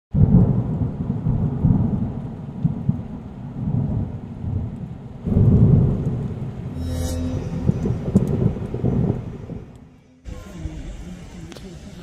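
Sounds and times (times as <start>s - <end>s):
rain: 0.1s - 6.8s, 8.3s - 12.0s
rolling thunder: 0.2s - 6.8s, 7.6s - 9.8s.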